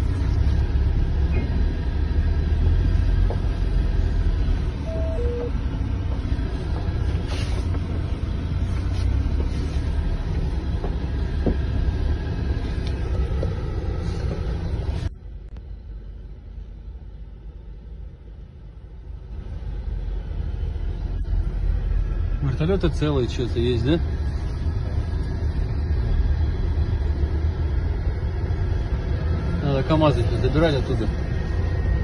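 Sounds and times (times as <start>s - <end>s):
car rumbling over rough ground: 0.0s - 32.0s
two-note beep: 4.8s - 5.6s.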